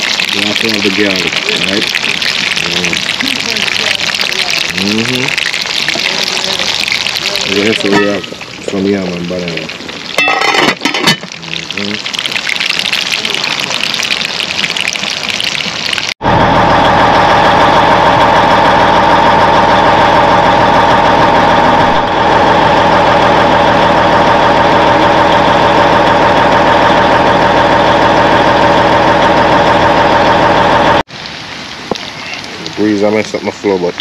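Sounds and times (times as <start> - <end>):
hot oil sizzling: 0.0 - 34.0
engine idling: 16.2 - 31.1.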